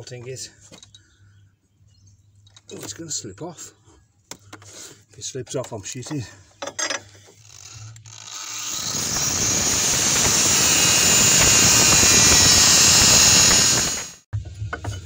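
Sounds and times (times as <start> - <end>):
angle grinder cutting steel: 7.5 - 14.2.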